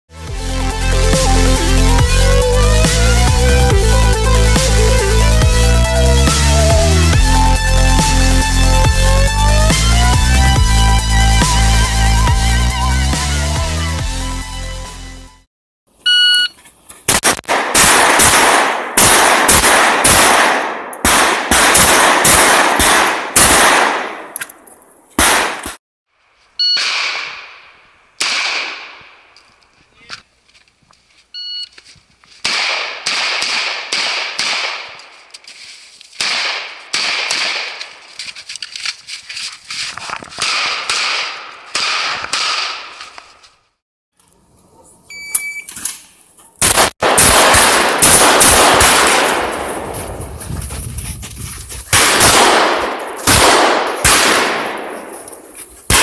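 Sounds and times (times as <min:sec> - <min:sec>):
rapid gunfire: 0:17.1 - 0:24.2, 0:25.2 - 0:25.7, 0:32.5 - 0:34.9, 0:36.2 - 0:37.8, 0:40.4 - 0:42.9, 0:46.6 - 0:50.0, 0:51.9 - 0:54.9.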